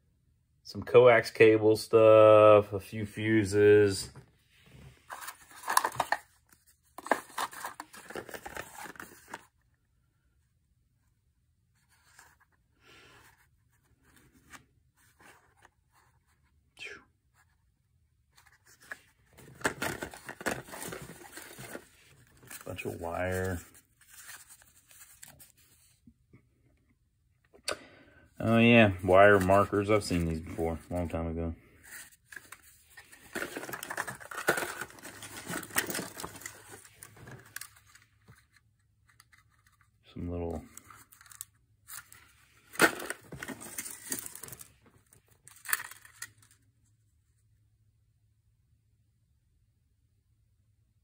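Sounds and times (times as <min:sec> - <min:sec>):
packaging crinkling: 0:05.1 - 0:06.2, 0:31.9 - 0:38.0
hands rummaging through small parts: 0:05.1 - 0:06.3, 0:07.0 - 0:09.5, 0:18.8 - 0:25.6, 0:31.8 - 0:38.5, 0:40.7 - 0:44.7, 0:45.4 - 0:46.6.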